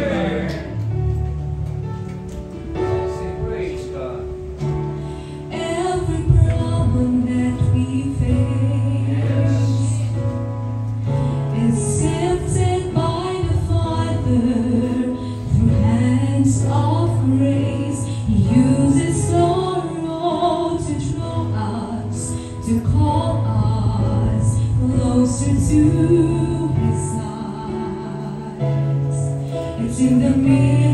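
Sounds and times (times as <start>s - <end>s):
instrumental accompaniment: 0.0s - 30.9s
woman singing gospel: 5.5s - 10.4s, 11.5s - 30.9s.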